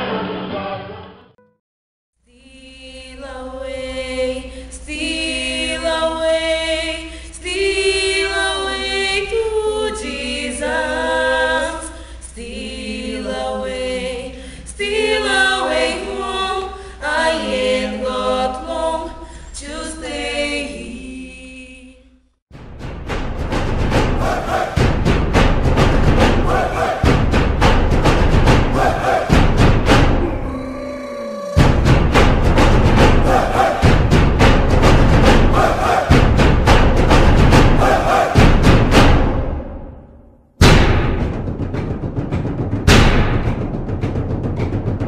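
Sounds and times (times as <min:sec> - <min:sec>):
choir singing a cappella: 0:02.3 - 0:22.2, 0:24.0 - 0:39.2.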